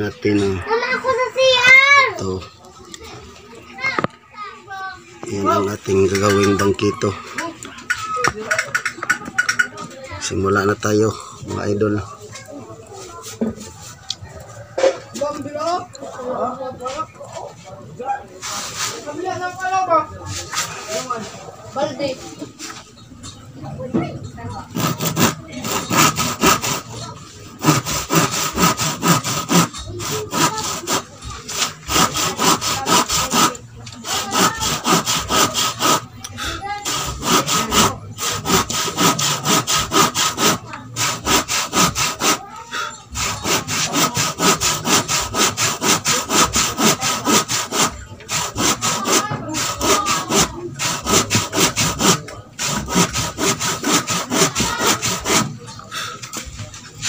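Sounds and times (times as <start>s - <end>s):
hand saw cutting wood: 5.3s - 7.0s, 24.6s - 56.8s.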